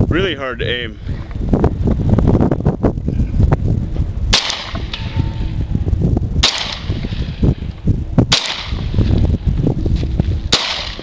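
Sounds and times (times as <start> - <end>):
pistol shots echoing: 6.4 - 7.0, 8.3 - 8.9, 10.5 - 11.0.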